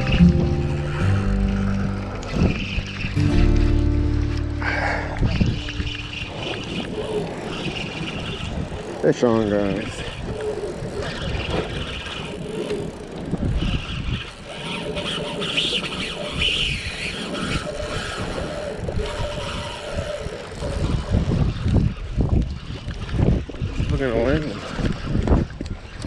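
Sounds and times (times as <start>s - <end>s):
wind buffeting microphone: 0.0s - 26.0s
spinning reel being cranked: 5.9s - 26.0s.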